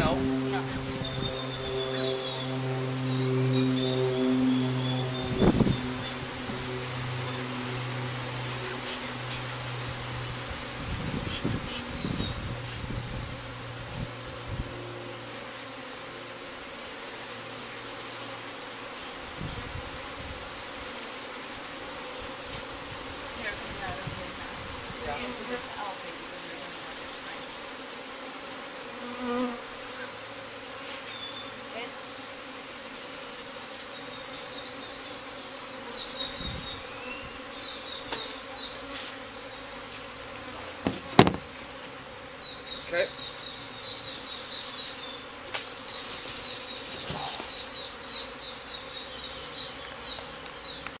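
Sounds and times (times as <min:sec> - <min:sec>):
bees buzzing: 0:00.0 - 0:51.0
sharp knocks and clicks: 0:40.8 - 0:41.4.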